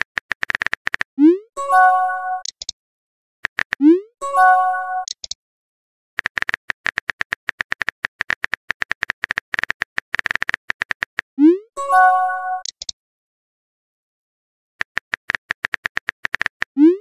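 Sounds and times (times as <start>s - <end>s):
keyboard typing clicks: 2.3s - 2.8s, 5.0s - 5.4s, 12.5s - 13.0s.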